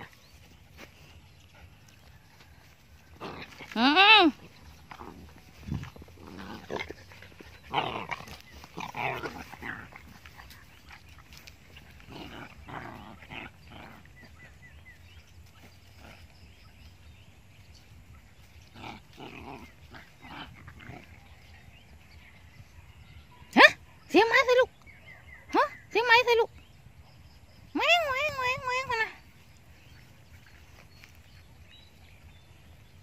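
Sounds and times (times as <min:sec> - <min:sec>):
puppies growling and yapping: 0:00.0 - 0:22.6.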